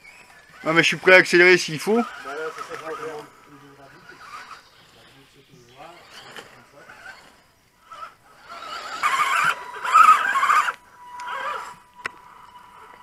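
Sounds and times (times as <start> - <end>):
electric motor whining: 0.0 - 13.0
scraping over rock: 6.0 - 13.0.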